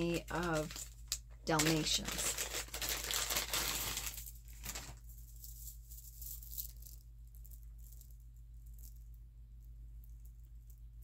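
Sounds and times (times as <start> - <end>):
stone beads rattling and clicking: 5.2 - 9.2.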